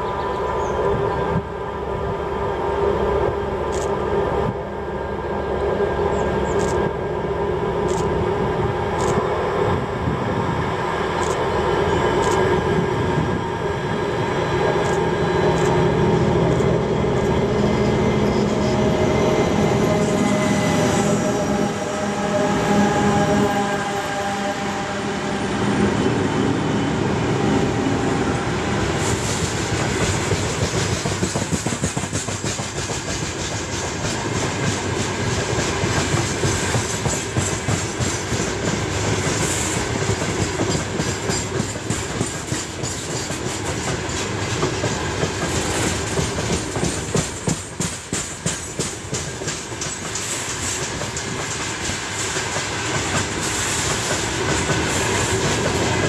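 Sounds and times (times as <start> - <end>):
steel wheels rumbling on rail: 0.0 - 56.0
wheels clickety-clack over joints: 29.7 - 56.0.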